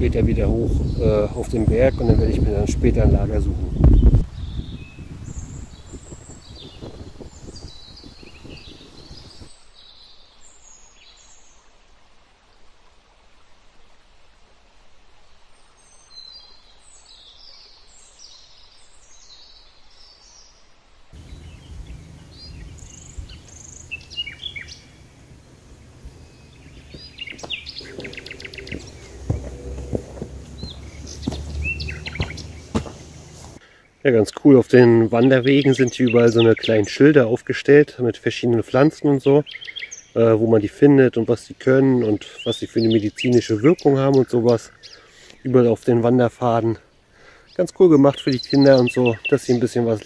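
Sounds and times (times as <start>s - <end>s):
songbirds chirping: 0.0s - 13.1s, 14.4s - 50.0s
footsteps on forest trail: 21.2s - 33.6s
low rushing noise: 21.2s - 33.6s.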